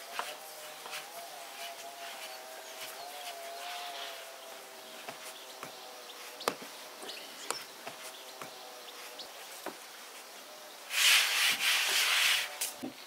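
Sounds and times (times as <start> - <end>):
hands kneading dough on wooden board: 0.1 - 3.9, 4.9 - 6.8, 7.4 - 9.8.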